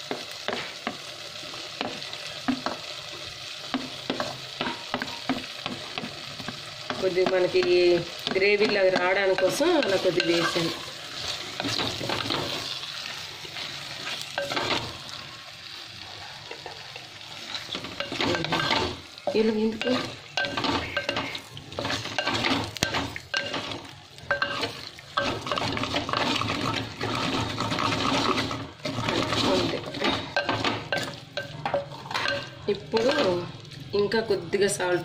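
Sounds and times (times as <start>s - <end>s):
food sizzling: 0.0s - 35.0s
wooden spatula scraping a pot: 3.8s - 15.0s, 17.4s - 33.4s.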